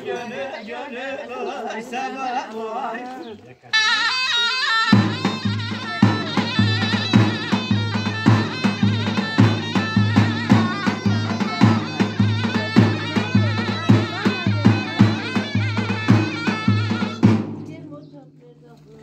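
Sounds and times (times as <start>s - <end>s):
shrill zurna melody: 3.7s - 18.2s
heavy davul drum strokes: 4.9s - 18.5s.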